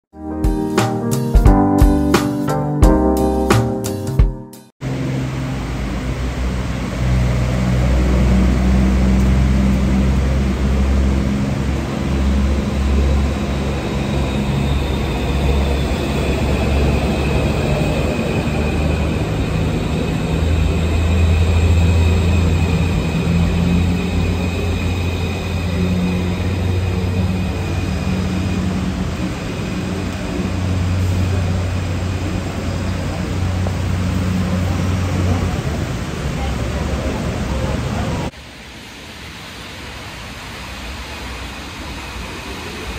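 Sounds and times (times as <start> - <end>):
train rumble: 4.8 - 38.3
faint high whine: 10.2 - 36.5.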